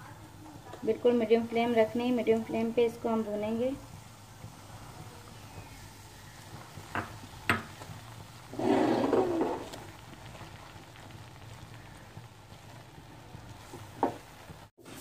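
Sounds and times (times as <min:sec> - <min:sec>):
frying hiss: 0:00.0 - 0:15.0
spatula stirring in frying pan: 0:00.0 - 0:15.0
knocks on pan: 0:06.9 - 0:07.8, 0:14.0 - 0:14.2.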